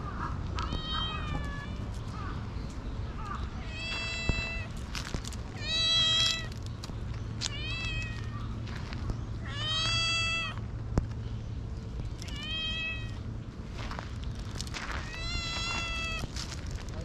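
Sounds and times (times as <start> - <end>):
cat meowing: 0.6 - 1.8, 3.6 - 4.7, 5.6 - 6.5, 7.5 - 8.4, 9.4 - 10.6, 12.3 - 13.2, 15.0 - 16.3.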